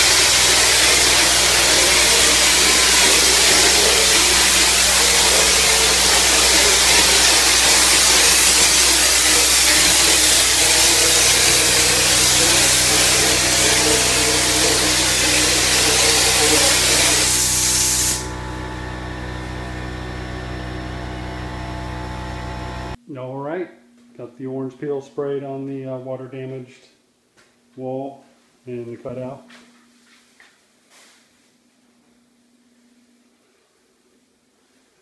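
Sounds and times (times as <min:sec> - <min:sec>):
air compressor motor humming: 0:00.0 - 0:23.0
spray gun hissing compressed air: 0:00.0 - 0:23.0.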